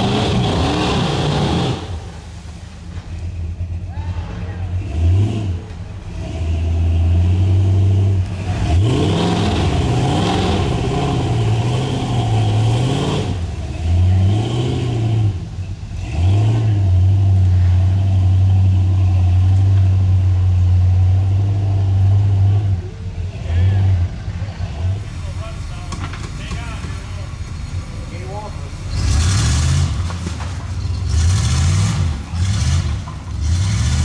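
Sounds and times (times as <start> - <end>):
buggy engine revving: 0.0 - 34.0.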